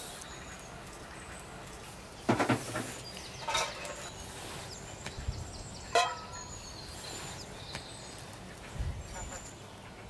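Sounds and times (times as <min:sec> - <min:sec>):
small birds chirping: 0:00.0 - 0:10.0
farmyard fowl calling: 0:05.8 - 0:07.2.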